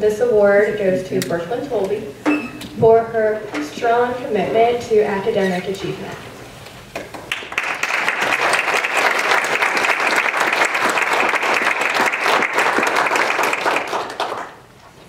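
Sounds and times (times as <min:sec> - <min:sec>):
people applauding: 0:07.1 - 0:14.7.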